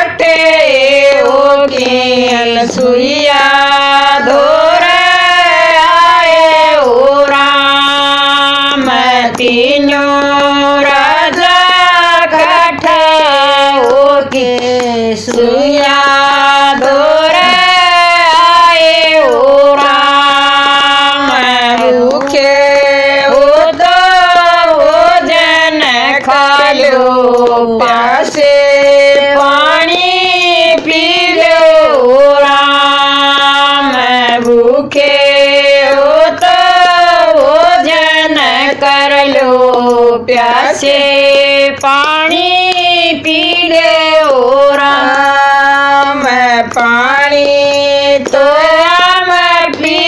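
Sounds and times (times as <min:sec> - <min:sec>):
women singing devotional song: 0:00.0 - 0:50.0.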